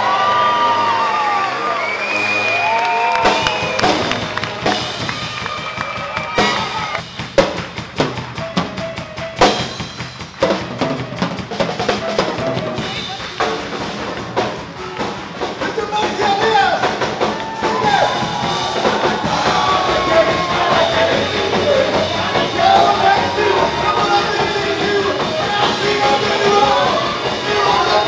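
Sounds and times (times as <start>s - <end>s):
crowd whooping: 0.0s - 7.1s, 15.9s - 28.0s
swing jazz drum kit: 3.2s - 28.0s.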